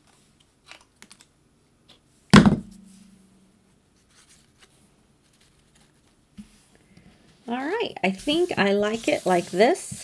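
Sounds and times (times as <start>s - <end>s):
loud knock on table: 2.4s - 2.8s.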